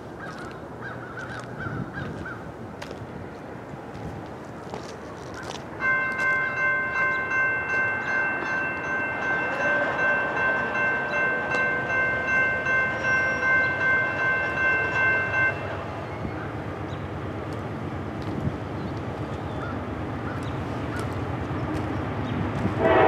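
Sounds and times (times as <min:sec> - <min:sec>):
low train rumble: 0:00.0 - 0:23.0
locomotive air horn chord: 0:22.8 - 0:23.0.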